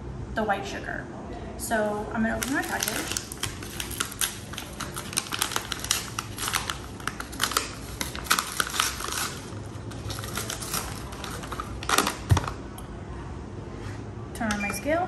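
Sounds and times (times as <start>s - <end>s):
paper bag crinkling and tearing: 2.3s - 12.6s.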